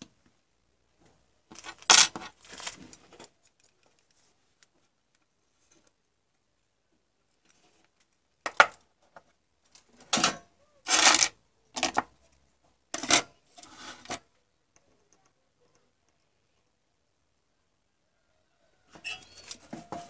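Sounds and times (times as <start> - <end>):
clattering and scraping on wood: 1.0 - 3.4, 12.9 - 14.3, 19.0 - 20.0.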